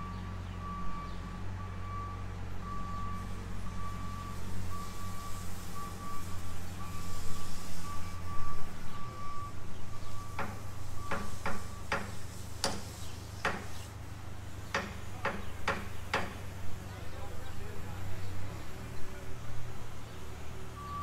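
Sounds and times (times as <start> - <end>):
reversing alarm beeping: 0.0 - 12.1, 20.7 - 21.0
engine running: 0.0 - 21.0
sharp knocks: 10.4 - 13.8, 14.7 - 16.5.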